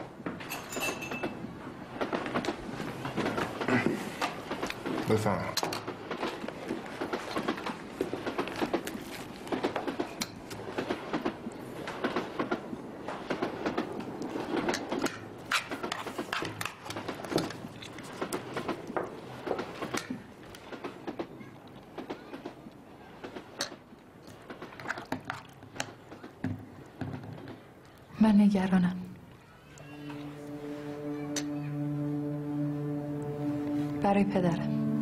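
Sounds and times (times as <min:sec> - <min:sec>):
cutlery clinking on plates: 0:00.4 - 0:01.4.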